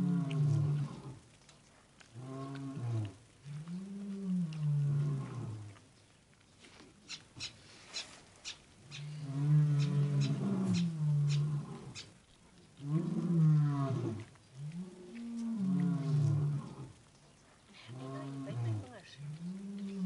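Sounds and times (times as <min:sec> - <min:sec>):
tiger cubs growling: 0:00.0 - 0:06.3, 0:07.0 - 0:20.0
wet chewing and licking clicks: 0:00.0 - 0:07.6, 0:12.0 - 0:13.3, 0:14.0 - 0:17.8, 0:18.9 - 0:20.0.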